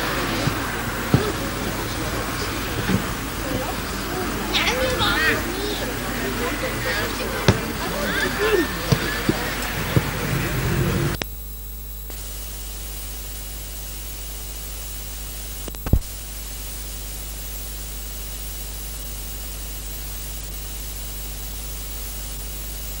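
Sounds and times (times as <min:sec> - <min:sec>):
low hum: 0:00.0 - 0:11.2
steady hiss: 0:00.0 - 0:23.0.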